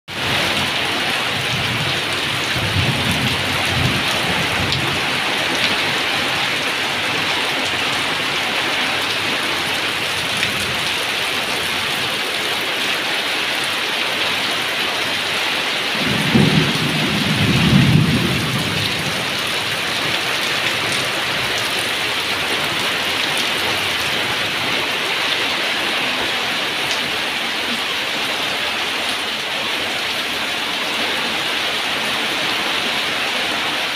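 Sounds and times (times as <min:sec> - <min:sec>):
heavy rain on tin roofs: 0:00.1 - 0:33.9
thunder rumbling: 0:00.2 - 0:08.2, 0:15.9 - 0:24.7.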